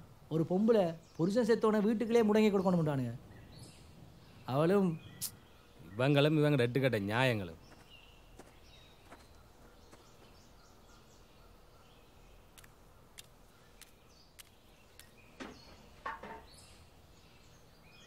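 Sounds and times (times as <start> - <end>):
faint birds chirping: 0.0 - 18.0
soft clicks: 12.5 - 15.2.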